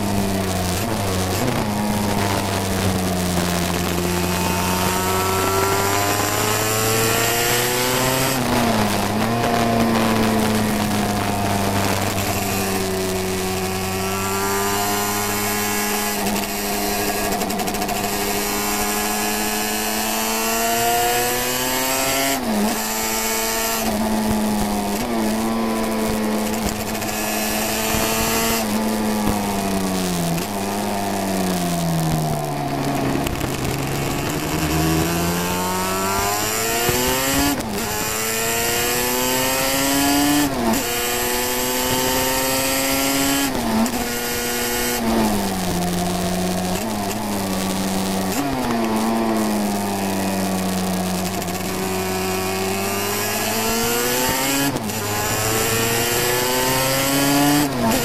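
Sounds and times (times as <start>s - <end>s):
racing motorcycle engine: 0.0s - 58.0s.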